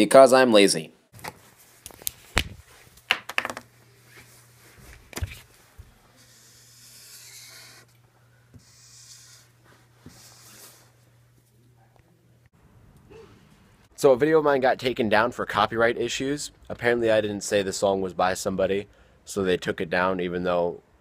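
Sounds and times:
faint steady hum: 1.2s - 21.0s
felt-tip marker scratching on paper: 6.2s - 7.9s, 8.6s - 10.9s.

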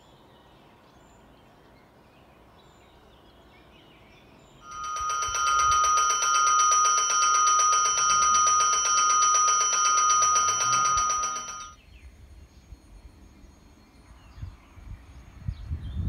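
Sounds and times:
electric bell ringing: 4.6s - 11.8s.

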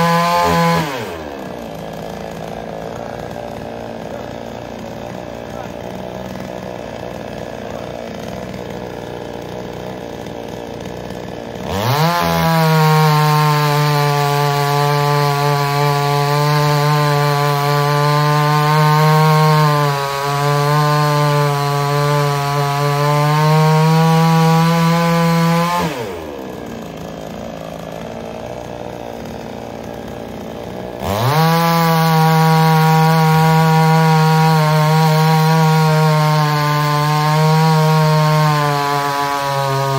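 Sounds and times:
chainsaw idling and revving: 0.0s - 39.9s.

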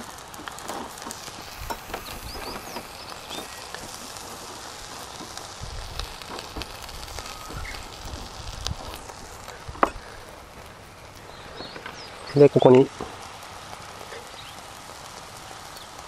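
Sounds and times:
barbecue grill hissing: 0.0s - 16.0s
small crackles and clicks: 0.0s - 16.0s.

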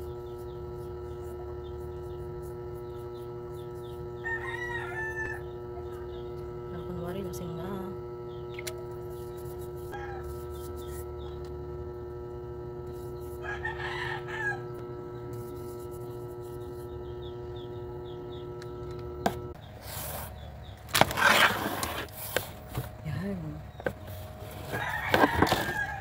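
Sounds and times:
steady electrical hum: 0.0s - 26.0s
rooster crowing: 4.2s - 6.2s, 9.8s - 10.6s, 13.3s - 14.9s, 24.6s - 26.0s.

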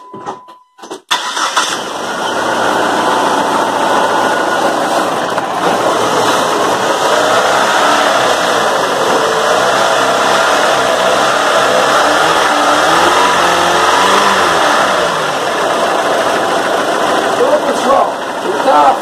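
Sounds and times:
car engine revving: 1.1s - 19.0s
man talking: 17.4s - 19.0s.

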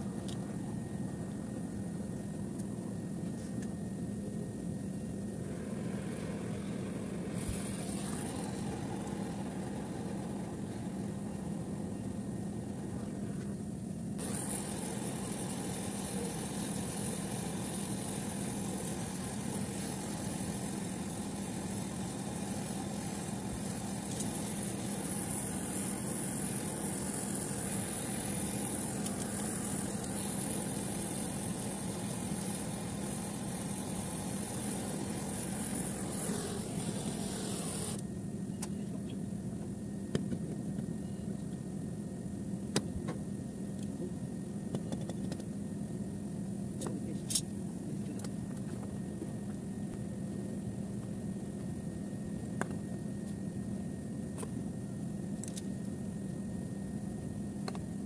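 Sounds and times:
machinery droning: 0.0s - 44.7s
high hiss: 5.3s - 13.0s, 14.2s - 38.0s.

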